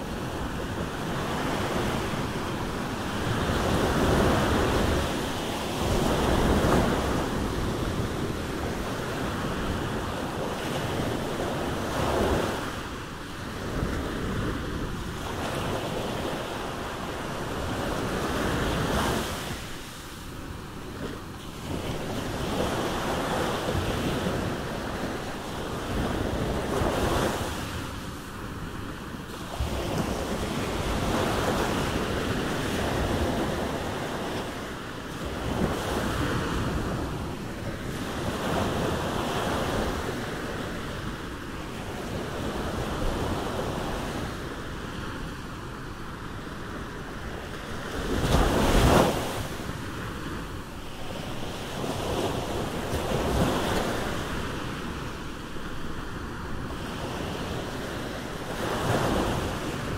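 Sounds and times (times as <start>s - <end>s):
waves breaking on beach: 0.0s - 59.9s.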